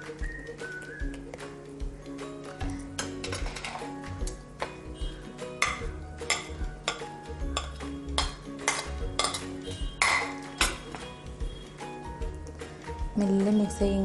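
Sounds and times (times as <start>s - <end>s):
background music: 0.0s - 14.0s
metal spoon scraping a bowl: 5.6s - 11.0s.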